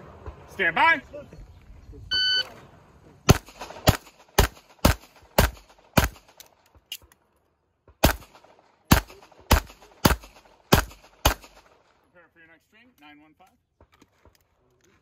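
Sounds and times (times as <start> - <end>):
shot timer beep: 2.1 - 2.5
pistol shots: 3.3 - 6.9, 7.9 - 12.0.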